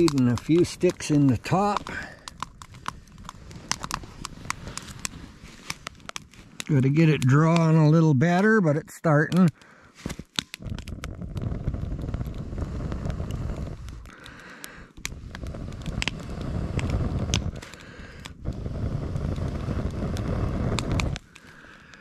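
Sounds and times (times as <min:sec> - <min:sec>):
wood fire crackling and popping: 0:00.0 - 0:22.0
low rushes of air: 0:10.6 - 0:14.1, 0:15.0 - 0:21.2.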